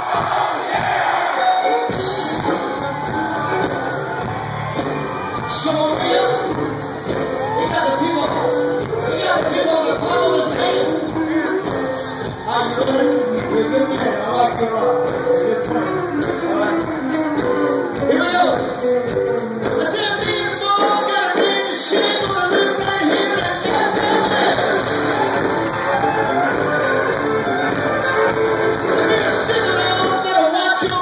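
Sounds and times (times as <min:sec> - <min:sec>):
live band playing: 0:00.0 - 0:31.0
electric guitar: 0:01.4 - 0:31.0
man singing into microphone: 0:05.4 - 0:06.6, 0:07.5 - 0:17.0, 0:19.7 - 0:24.9, 0:28.8 - 0:31.0.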